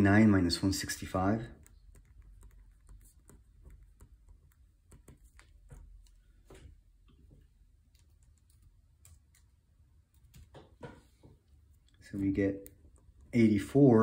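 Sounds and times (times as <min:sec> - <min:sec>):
marker tapping on paper: 0:01.9 - 0:06.6.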